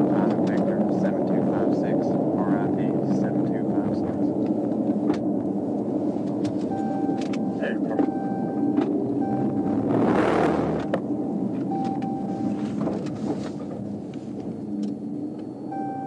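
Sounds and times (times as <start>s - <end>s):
rushing noise: 0.0s - 15.8s
car road and engine noise: 0.0s - 16.0s
scattered clicks: 0.2s - 0.9s
faint steady tone: 6.7s - 9.9s, 11.1s - 12.7s, 14.1s - 16.0s.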